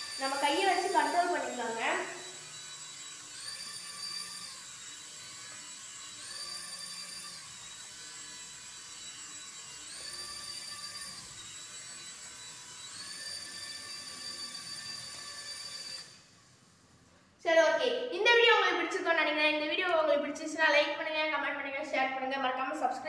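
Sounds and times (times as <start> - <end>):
toy helicopter rotor whine: 0.0 - 16.6.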